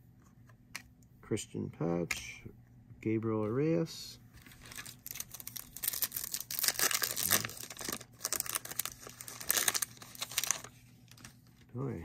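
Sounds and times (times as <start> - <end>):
foil wrapper tearing and crinkling: 4.5 - 11.4.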